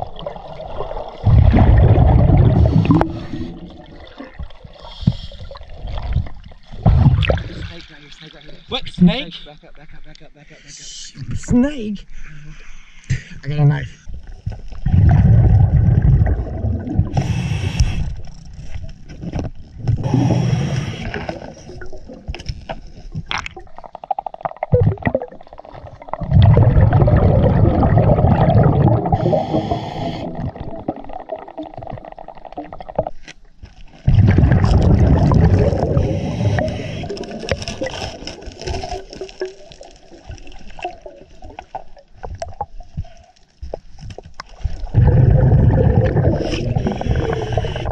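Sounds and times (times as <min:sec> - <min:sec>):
bubbling regulator exhalations: 0:00.0 - 0:06.1, 0:14.8 - 0:18.2, 0:19.9 - 0:22.4, 0:23.2 - 0:33.2, 0:34.0 - 0:39.6, 0:44.8 - 0:47.9
hissing regulator inhalations: 0:17.1 - 0:18.2, 0:20.0 - 0:21.4, 0:29.1 - 0:30.5, 0:35.9 - 0:37.3, 0:46.2 - 0:47.9.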